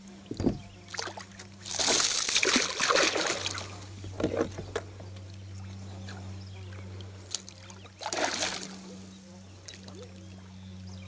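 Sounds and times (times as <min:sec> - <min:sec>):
fish splashing at water surface: 0:01.0 - 0:03.8, 0:07.3 - 0:08.8.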